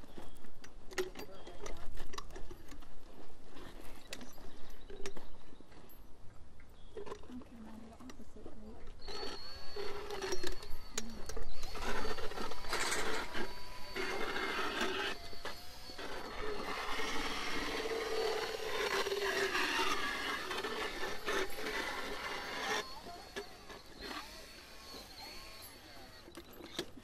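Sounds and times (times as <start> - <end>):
power float grinding teeth: 9.0 - 27.0.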